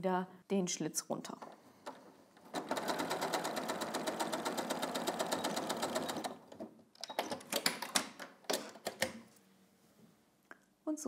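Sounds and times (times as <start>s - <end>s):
sewing machine stitching: 1.3s - 7.7s.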